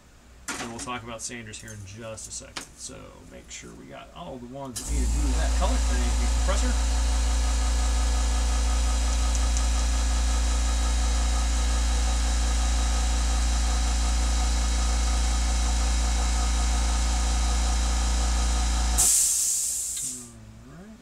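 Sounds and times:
air compressor humming: 4.8 - 20.4.

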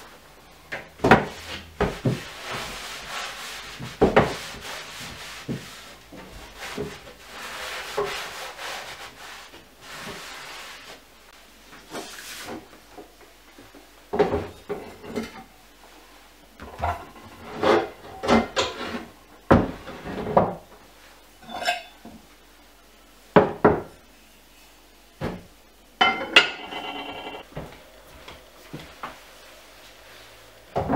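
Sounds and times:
metal pots clanking on shelf: 26.0 - 27.4.

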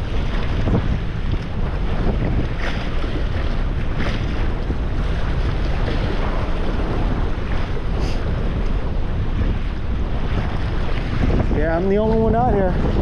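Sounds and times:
waves washing: 0.0 - 13.0
wind buffeting microphone: 0.0 - 13.0.

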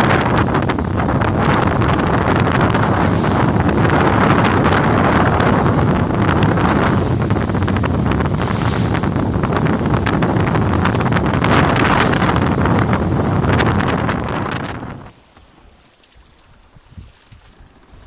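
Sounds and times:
wind buffeting microphone: 0.0 - 18.0
water splashing along hull: 2.6 - 4.4.

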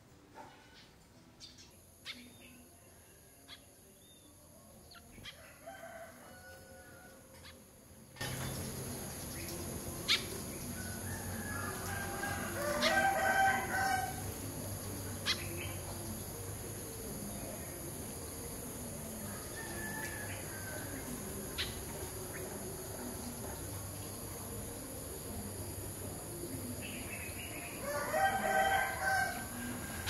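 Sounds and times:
small birds chirping: 0.7 - 5.5, 8.2 - 30.0
rooster crowing: 5.4 - 7.4, 10.8 - 14.4, 19.2 - 21.4, 27.8 - 30.0
steady high hiss: 8.0 - 30.0.

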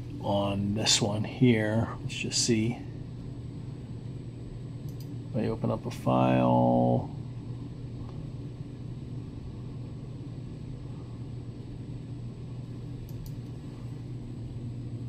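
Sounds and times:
low room hum: 0.0 - 15.0
faint mouse clicks: 4.8 - 5.2, 13.0 - 13.6.

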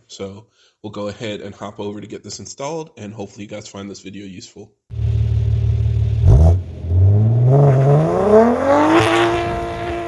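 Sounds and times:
car accelerating away: 4.9 - 10.0
car exhaust drone: 4.9 - 10.0.

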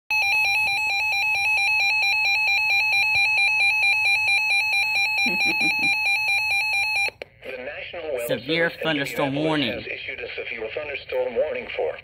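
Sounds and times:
rapidly pulsing alarm beep: 0.1 - 7.1.

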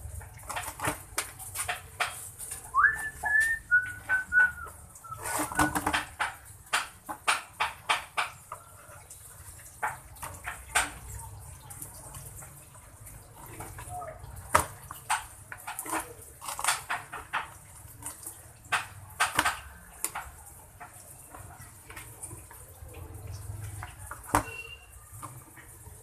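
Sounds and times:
blade scraping plastic basin: 0.3 - 6.4
short whistle: 2.8 - 5.6.

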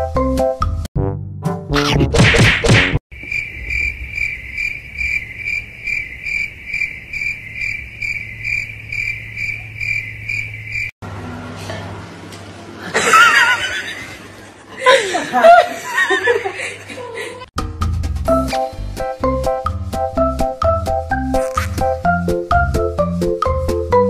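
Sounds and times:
cricket chirping: 3.1 - 10.9.

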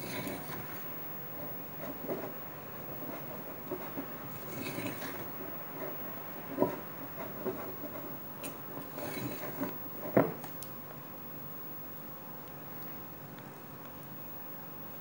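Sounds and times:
utensil stirring dough in glass bowl: 0.0 - 10.4.

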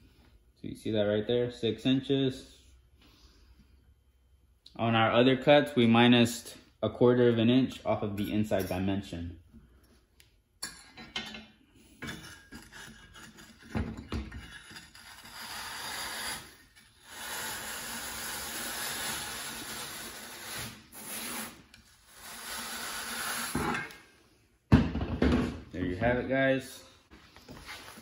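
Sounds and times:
blade scraping groove in duct board: 12.1 - 23.9.

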